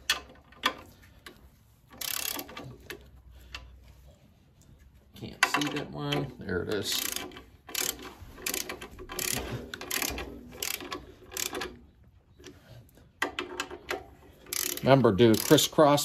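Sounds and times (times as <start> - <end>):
torque wrench ratchet clicking: 2.0 - 2.6, 6.8 - 11.8, 13.9 - 15.8.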